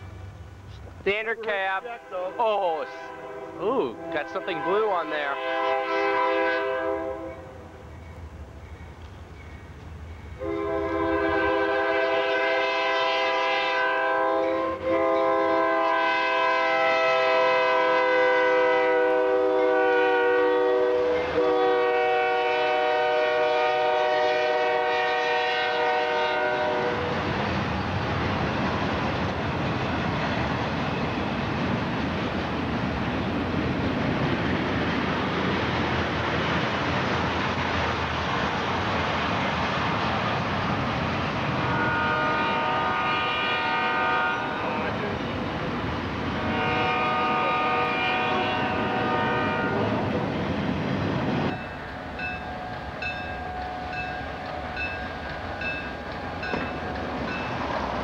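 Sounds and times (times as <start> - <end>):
locomotive air horn blasts: 1.3 - 7.5, 10.4 - 27.1, 41.6 - 45.1, 46.4 - 50.1
train wheels clattering on rails: 26.9 - 41.7, 49.9 - 58.0.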